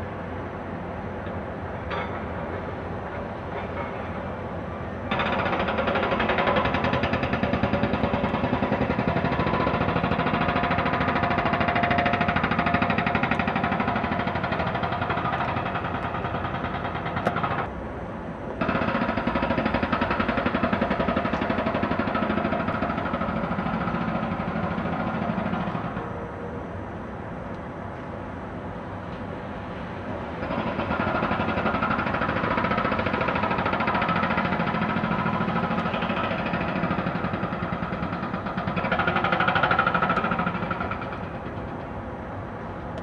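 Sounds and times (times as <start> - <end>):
demolition machinery knocking: 5.1 - 17.7, 18.6 - 26.0, 30.4 - 41.7.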